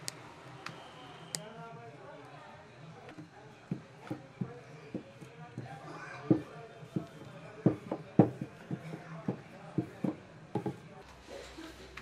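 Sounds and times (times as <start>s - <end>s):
rolling pin knocking on board: 3.7s - 10.8s.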